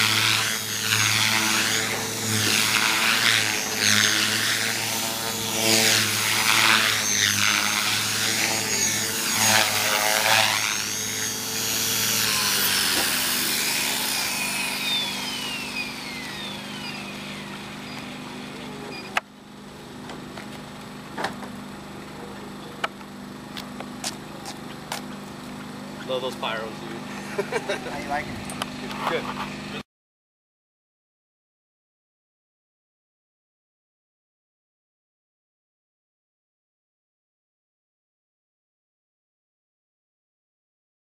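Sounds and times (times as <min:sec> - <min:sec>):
rotor blades whooshing: 0:00.0 - 0:19.2
electric motor whine: 0:00.0 - 0:29.8.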